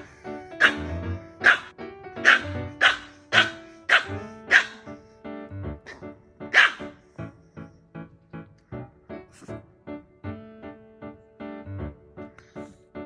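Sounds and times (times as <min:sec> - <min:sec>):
puppy barking: 0:00.0 - 0:05.1, 0:05.9 - 0:07.0
background music: 0:00.0 - 0:13.0.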